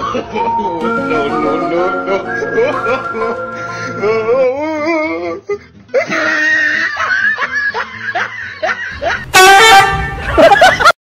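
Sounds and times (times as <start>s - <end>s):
person snickering: 2.0s - 4.3s
car horn blaring: 9.3s - 10.4s.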